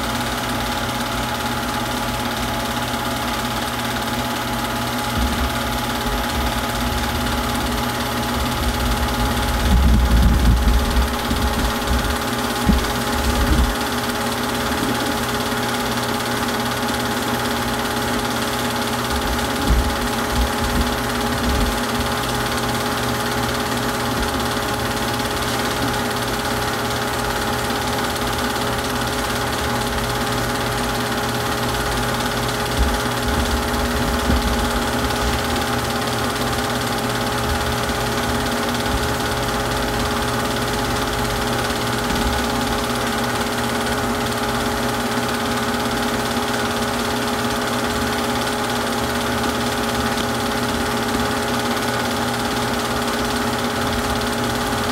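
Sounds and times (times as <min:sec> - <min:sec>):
film projector whirring: 0:00.0 - 0:54.9.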